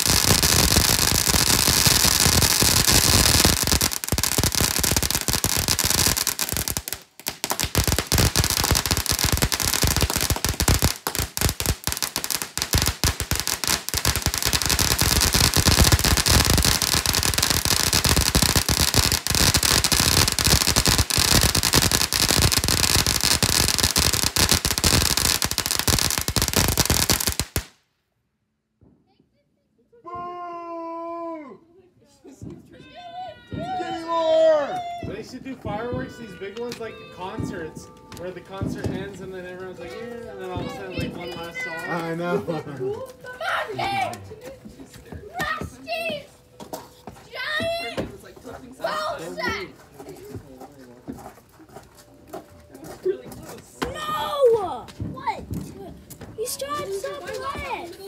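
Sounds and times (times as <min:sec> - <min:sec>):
firework fountain hissing and crackling: 0:00.0 - 0:27.7.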